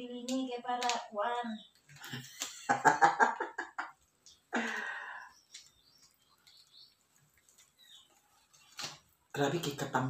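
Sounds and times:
faint clicks: 0:04.1 - 0:06.7.

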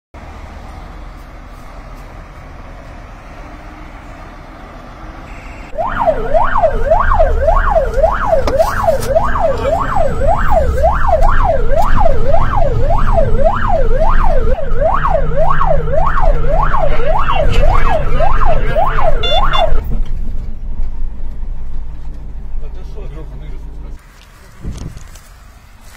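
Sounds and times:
truck engine rumble: 0:00.1 - 0:25.9
fire engine siren wailing: 0:03.1 - 0:19.9.

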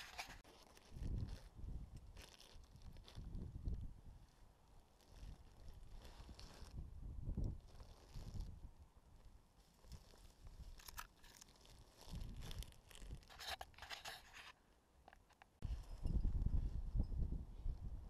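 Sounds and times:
hands and gear scraping: 0:00.0 - 0:03.4, 0:04.9 - 0:06.8, 0:07.5 - 0:08.6, 0:09.6 - 0:15.9
wind rumble on microphone: 0:00.0 - 0:04.4, 0:05.2 - 0:08.9, 0:12.0 - 0:13.3, 0:15.6 - 0:18.0.

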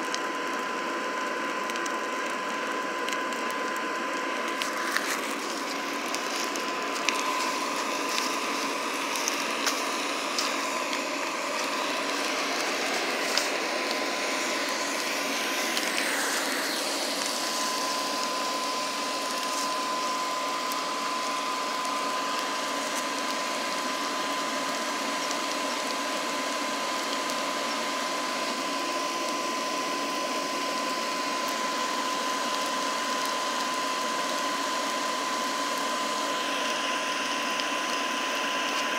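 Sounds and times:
air blower whirring: 0:00.0 - 0:38.9
sharp pops from fire: 0:01.5 - 0:18.4.

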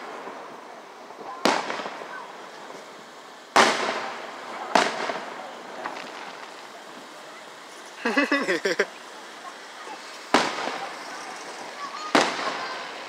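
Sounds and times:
firework shells bursting: 0:01.2 - 0:08.2, 0:09.9 - 0:13.0.

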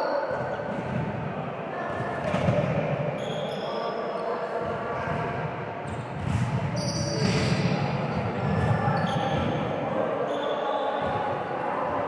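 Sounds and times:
din of play in gym: 0:00.0 - 0:12.0.

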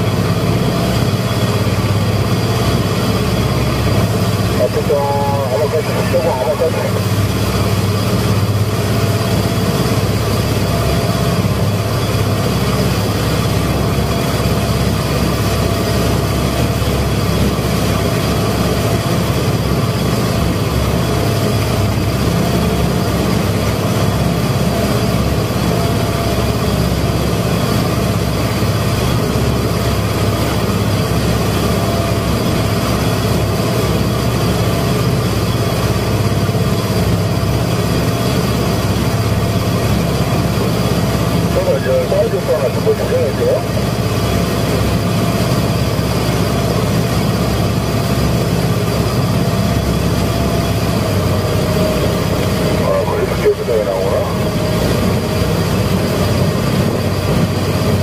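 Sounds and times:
motorboat engine drone: 0:00.0 - 0:58.0
wind: 0:00.0 - 0:58.0.

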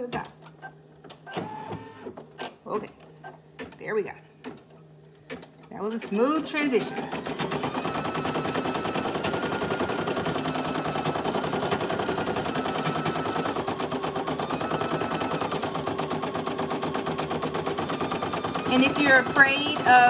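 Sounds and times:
embroidery machine needle clatter: 0:17.2 - 0:20.0.

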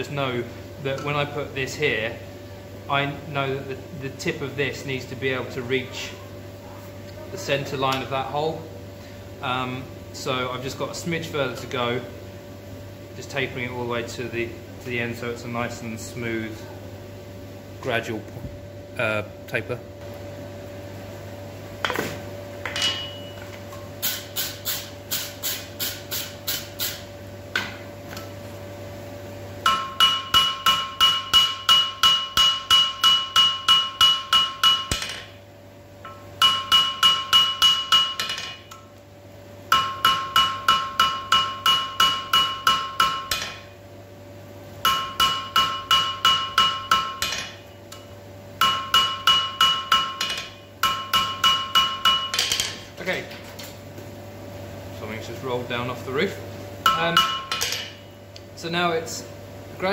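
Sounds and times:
steady low hum: 0:00.0 - 0:59.9
hammer striking ringing anvil: 0:22.8 - 0:23.4, 0:29.6 - 0:35.3, 0:36.0 - 0:38.6, 0:39.7 - 0:43.7, 0:44.8 - 0:47.6, 0:48.6 - 0:52.8, 0:56.8 - 0:58.1.

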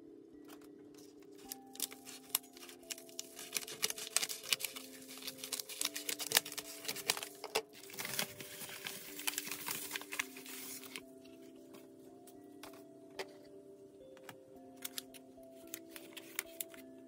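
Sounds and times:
envelope rustling and crinkling: 0:00.5 - 0:11.8, 0:14.8 - 0:16.9
scissors snipping paper: 0:01.0 - 0:11.0.

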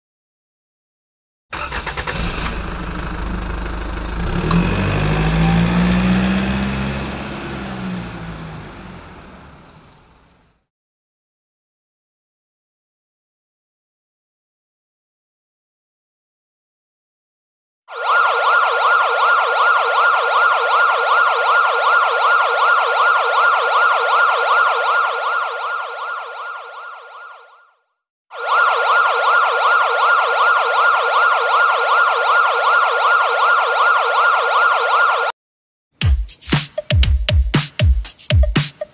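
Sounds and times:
ambulance siren: 0:04.2 - 0:10.2, 0:17.9 - 0:35.4
electronic dance beat: 0:36.0 - 0:38.9.

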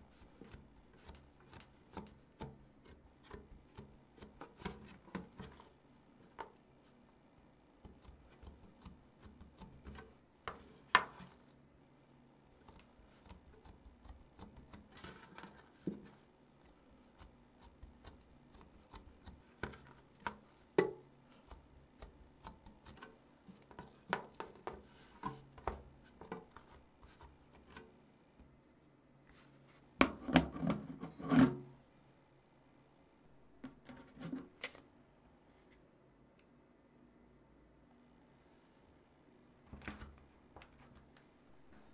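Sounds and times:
dough squishing and rubbing: 0:00.0 - 0:27.9.

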